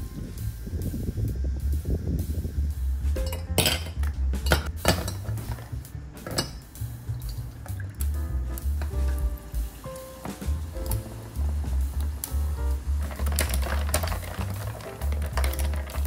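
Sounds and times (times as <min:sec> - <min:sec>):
background music: 0:00.0 - 0:16.0
tongs and ice clinking on glass: 0:03.2 - 0:05.6, 0:06.2 - 0:08.0, 0:13.0 - 0:16.0
juice poured over ice: 0:07.0 - 0:09.2, 0:10.8 - 0:16.0.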